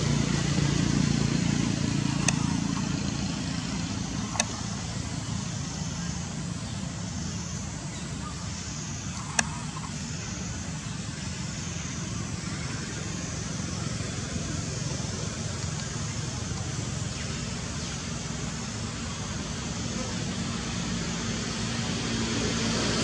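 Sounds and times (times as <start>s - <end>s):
outdoor rumble and hiss: 0.0s - 23.0s
sharp clicks: 2.2s - 2.9s, 4.2s - 4.7s, 9.1s - 10.0s.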